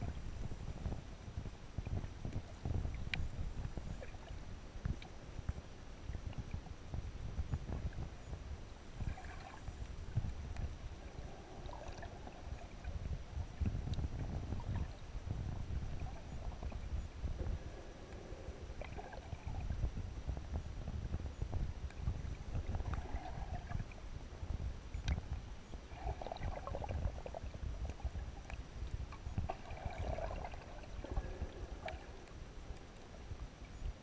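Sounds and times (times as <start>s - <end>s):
underwater water rumble: 0.0s - 34.0s
faint clicks: 1.8s - 5.6s, 25.0s - 25.3s.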